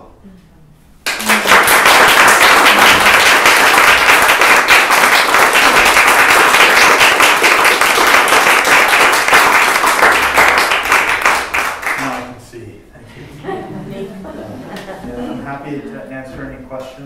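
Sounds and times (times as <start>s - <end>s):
audience applauding: 1.0s - 12.3s.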